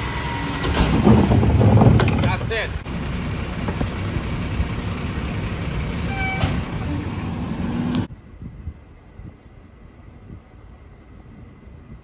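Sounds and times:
hydraulic packer working: 0:00.0 - 0:03.0
garbage truck engine under load: 0:00.0 - 0:08.1.

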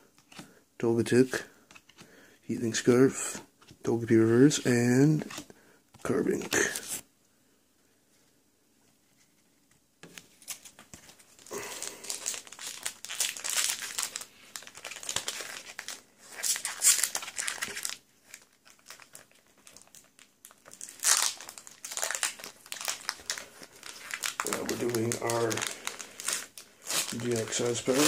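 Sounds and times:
foil wrapper crinkling: 0:10.5 - 0:28.0.

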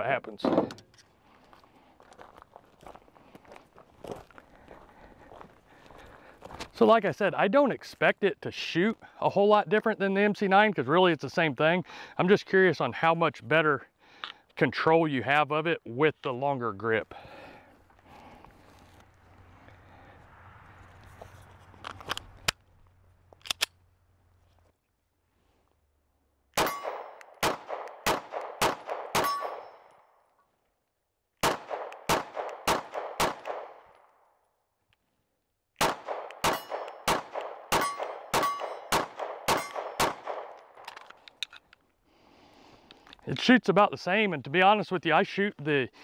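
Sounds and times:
gun handling clicks: 0:21.8 - 0:22.6, 0:23.3 - 0:23.8, 0:35.8 - 0:41.8
pistol shots: 0:26.6 - 0:29.8, 0:31.4 - 0:33.9, 0:35.8 - 0:40.8.

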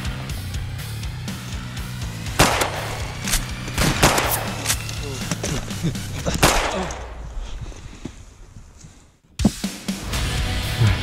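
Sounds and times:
background music: 0:00.0 - 0:07.2, 0:09.4 - 0:11.0
gunshot bangs: 0:02.4 - 0:04.8, 0:06.3 - 0:07.2.

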